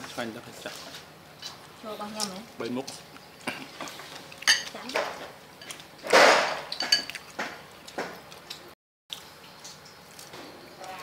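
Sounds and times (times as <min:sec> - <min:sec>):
utensils clinking ceramic bowls: 0:03.6 - 0:05.8, 0:06.5 - 0:07.3.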